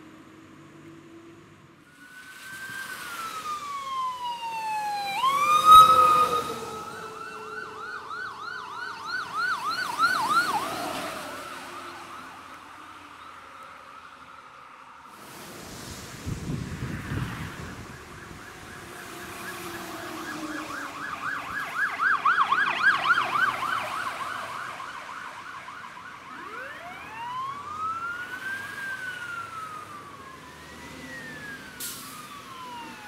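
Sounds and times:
tyres hissing on wet road: 1.9s - 7.4s, 15.0s - 21.6s, 27.4s - 33.0s
emergency siren wailing and yelping: 1.9s - 15.2s, 17.1s - 33.0s.

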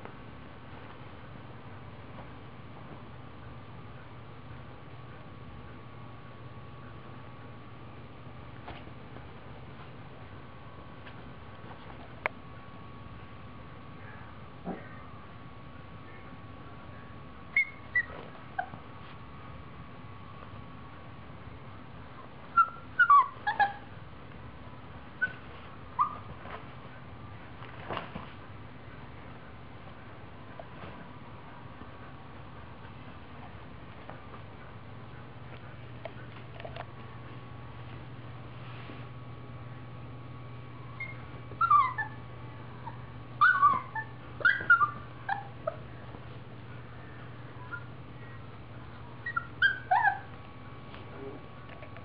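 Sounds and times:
puppy yipping and squeaking: 17.5s - 18.8s, 22.5s - 23.9s, 25.2s - 26.4s, 41.0s - 42.2s, 42.8s - 45.8s, 47.6s - 47.9s, 49.2s - 50.4s.

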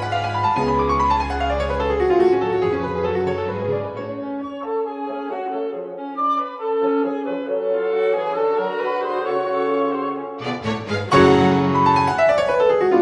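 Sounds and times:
slow instrumental music: 8.7s - 13.0s.

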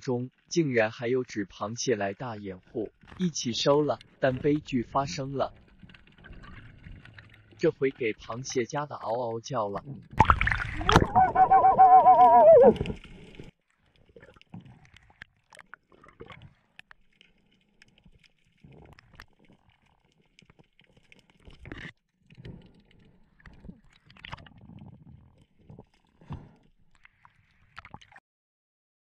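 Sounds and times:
low water rumbles: 9.8s - 13.5s.

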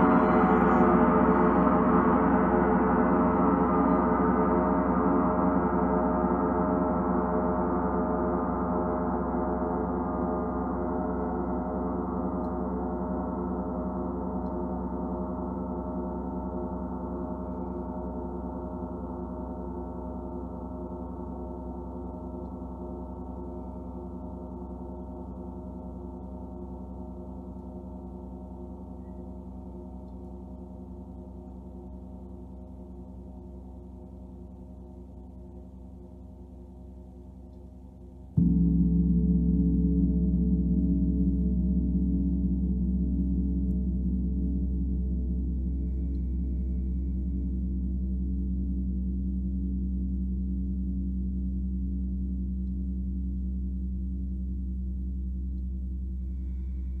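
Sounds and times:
gong ringing: 0.0s - 4.9s.

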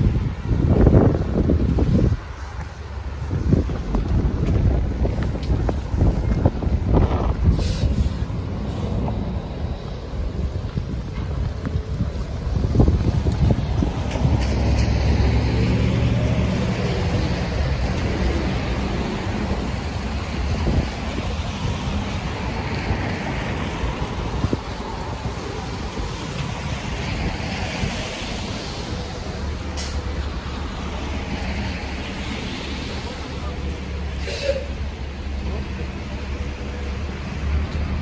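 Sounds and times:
heavy vehicle engine: 0.0s - 38.0s
low rumble of road noise: 0.0s - 38.0s.

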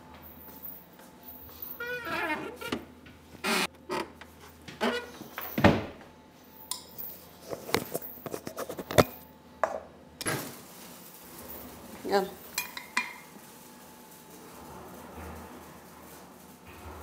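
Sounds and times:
kitchen items knocking and clinking: 12.2s - 13.4s.

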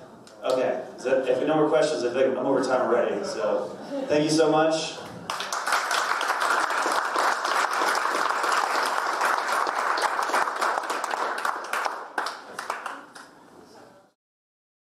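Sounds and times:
audience applauding: 5.3s - 13.4s.

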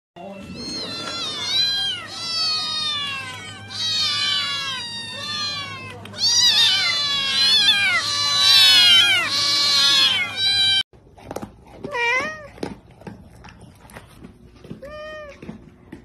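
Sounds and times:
cats meowing: 0.2s - 10.8s, 11.8s - 12.7s, 14.7s - 15.6s.

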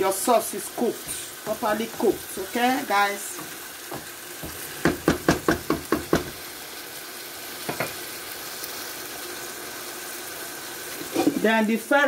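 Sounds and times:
sauce sizzling in a frying pan: 0.0s - 12.0s
wooden spatula knocking on pan: 1.4s - 6.4s.

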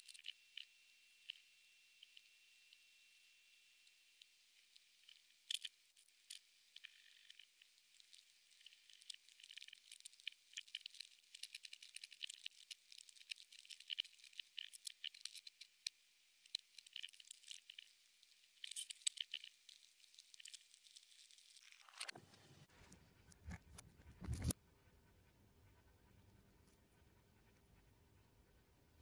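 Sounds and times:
insect mandibles crunching: 5.0s - 22.1s.

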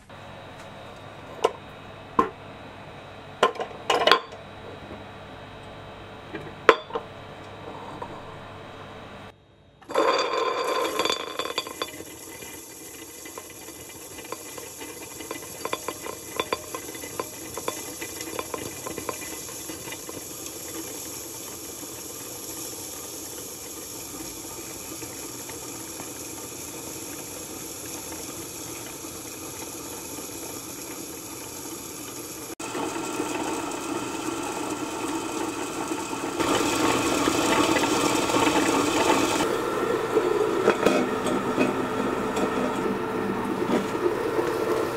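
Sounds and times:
stone grinder motor whirring: 9.8s - 44.9s.

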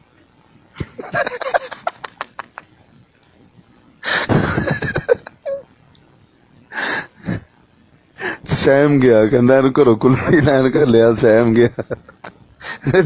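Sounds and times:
man laughing breathily: 0.8s - 2.8s, 4.0s - 5.6s, 11.8s - 13.0s.

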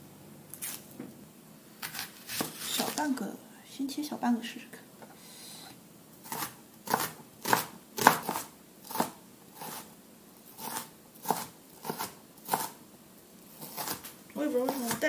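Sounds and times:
cleaver chopping on cutting board: 6.3s - 9.8s.

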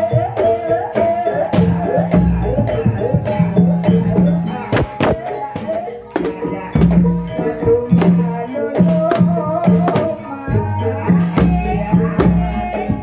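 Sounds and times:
ringing bronze gongs and metallophones: 0.0s - 13.0s
hand drum strokes: 1.5s - 10.2s.

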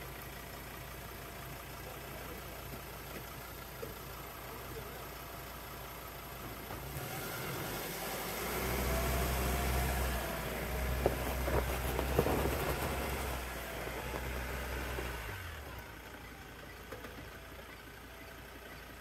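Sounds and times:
engine running at low speed: 0.0s - 19.0s.

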